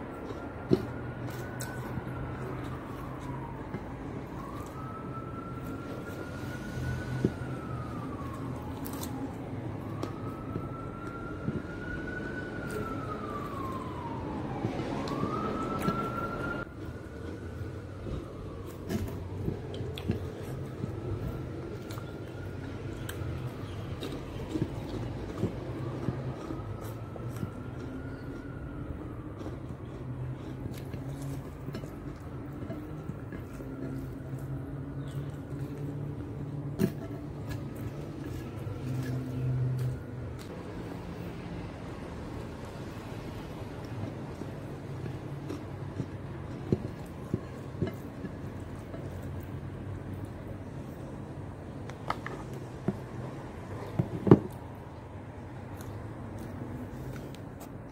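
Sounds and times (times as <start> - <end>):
fingers picking at food: 0.0 - 16.5, 17.2 - 40.6, 55.6 - 57.9
siren wailing: 0.0 - 57.9.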